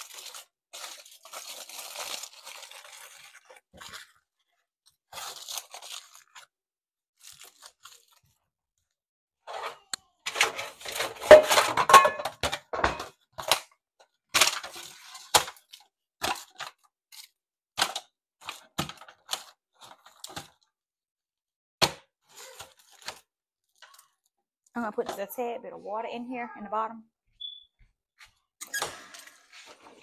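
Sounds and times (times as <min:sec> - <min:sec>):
aluminium foil crinkling: 0:00.0 - 0:06.6, 0:07.2 - 0:08.5, 0:14.3 - 0:20.7, 0:22.3 - 0:24.3.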